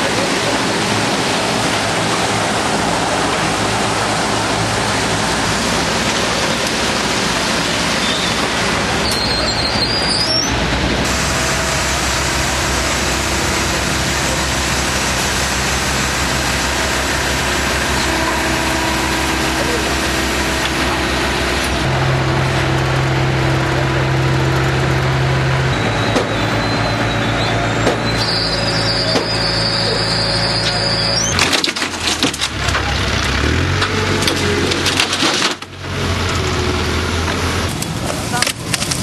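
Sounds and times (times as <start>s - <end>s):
loud engine noise: 0.0s - 39.0s
low hum: 10.5s - 31.4s.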